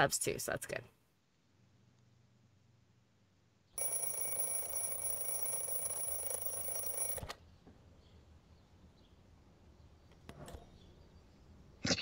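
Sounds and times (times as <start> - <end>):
alarm clock bells ringing: 3.8 - 7.2.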